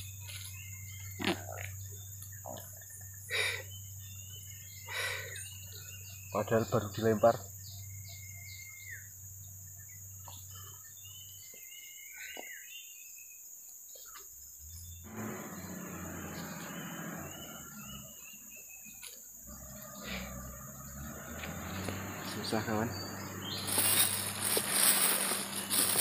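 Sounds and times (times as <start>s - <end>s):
high insect chorus: 0.0s - 26.0s
scuffling handling noise: 23.4s - 26.0s.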